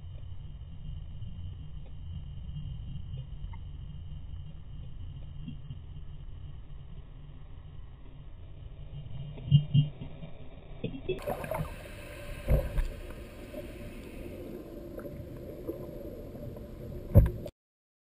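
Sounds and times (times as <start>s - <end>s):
underwater rumble of moving water: 0.0s - 17.5s
dull underwater thumps: 12.4s - 12.9s, 17.1s - 17.5s.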